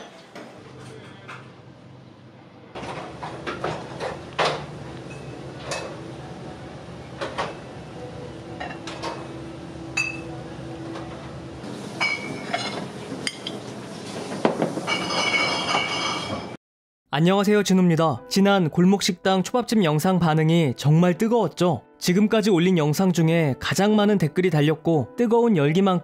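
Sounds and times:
dishes and utensils clattering: 2.8s - 6.0s, 8.6s - 9.4s, 11.9s - 16.6s.

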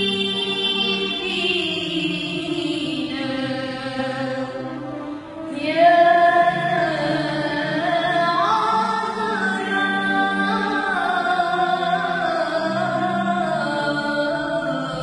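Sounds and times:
girl singing a hymn: 0.0s - 4.5s, 5.5s - 15.0s.

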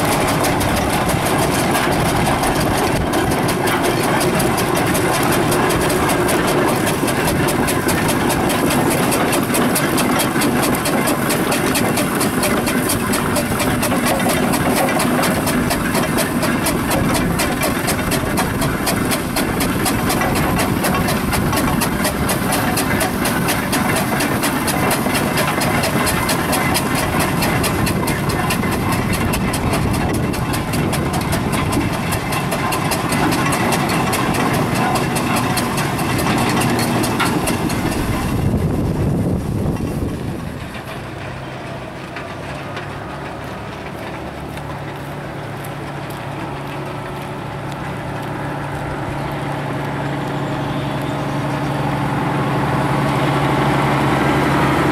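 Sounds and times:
steam vehicle engine beat: 0.0s - 54.9s.

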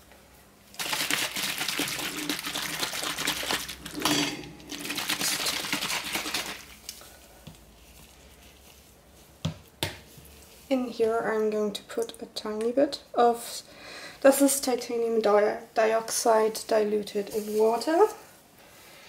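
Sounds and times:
plastic bottle shaken rattling: 0.8s - 4.1s, 4.7s - 6.8s.

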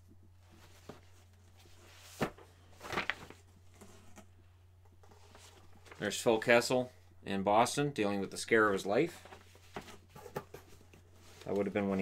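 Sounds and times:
paper rustle: 0.5s - 4.1s.

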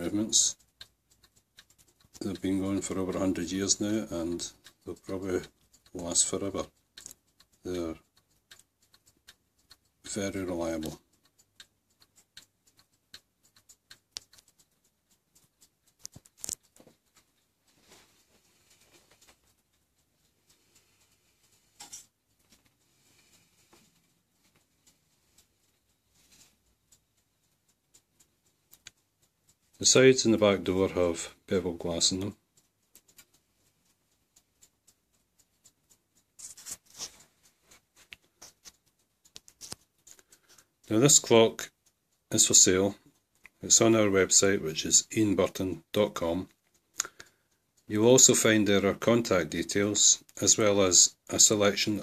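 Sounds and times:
mantel clock ticking: 0.0s - 52.0s
rustling noise: 16.0s - 26.8s, 36.4s - 40.2s.

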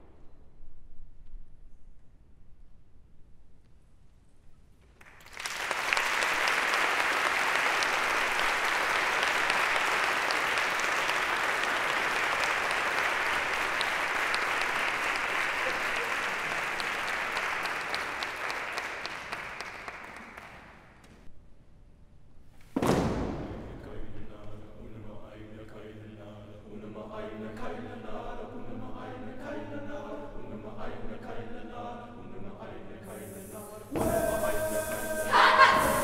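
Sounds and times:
audience applause: 5.0s - 20.9s, 34.0s - 36.0s.

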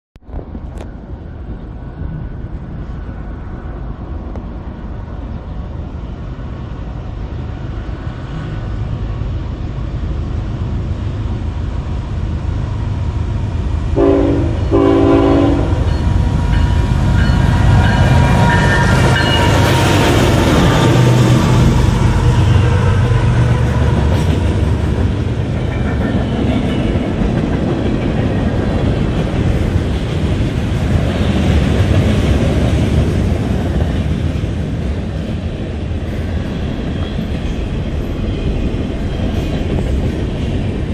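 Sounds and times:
freight train rumble: 0.2s - 40.9s
locomotive horn blasts: 14.0s - 16.0s.

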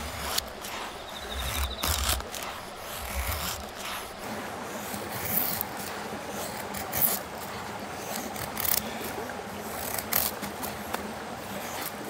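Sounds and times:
knife scraping wooden stick: 0.0s - 4.2s.

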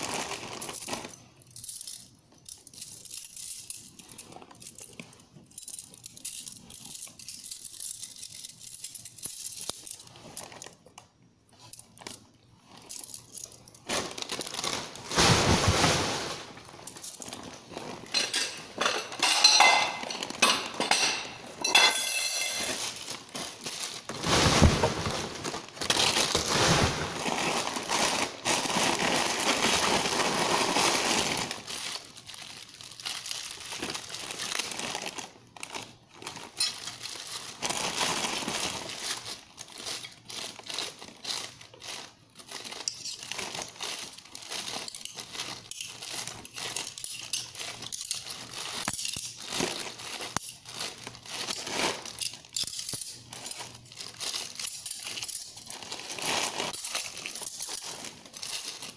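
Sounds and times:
plastic packaging crinkling: 0.0s - 58.9s.

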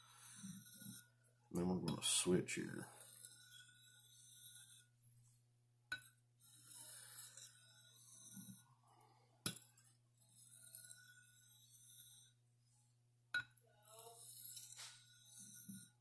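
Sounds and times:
knife scraping on sharpening stone: 0.0s - 1.1s, 2.9s - 5.0s, 5.9s - 8.7s, 9.5s - 12.4s, 13.4s - 16.0s.

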